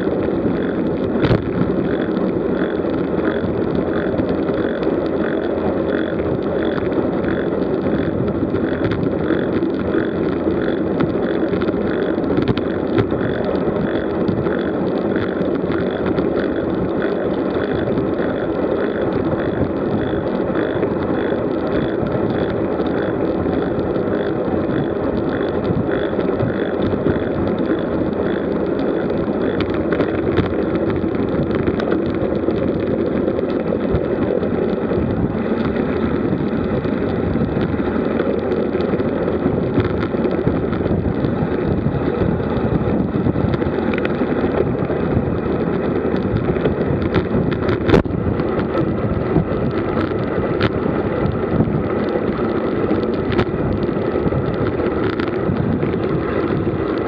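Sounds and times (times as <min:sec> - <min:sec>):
bicycle tyre and road noise: 0:00.0 - 0:57.0
faint regular ticking: 0:00.0 - 0:57.0
wind rushing over microphone: 0:00.0 - 0:57.0.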